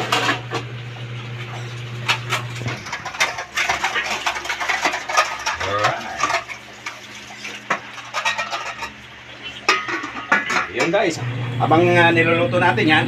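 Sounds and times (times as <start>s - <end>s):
kitchen pots and utensils clattering: 0.0s - 0.7s, 1.4s - 11.2s.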